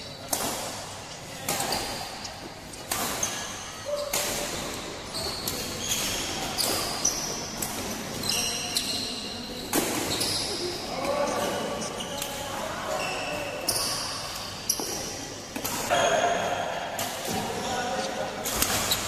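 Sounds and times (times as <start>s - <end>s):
rackets hitting shuttlecock: 0.2s - 8.0s
shoes squeaking on court: 1.1s - 15.3s, 17.5s - 19.0s.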